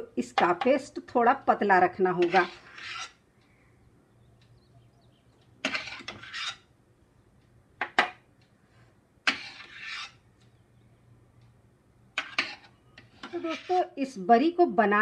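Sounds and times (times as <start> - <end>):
dough scraping on steel plate: 2.1 - 3.2, 5.6 - 6.7, 9.3 - 10.2, 12.2 - 14.2.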